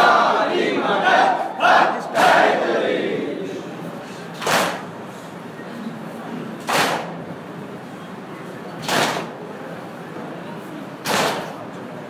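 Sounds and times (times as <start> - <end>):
background of voices: 0.0 - 12.0
people beating chests in unison: 1.7 - 2.8, 4.4 - 5.0, 6.6 - 7.2, 8.8 - 9.4, 11.0 - 11.6.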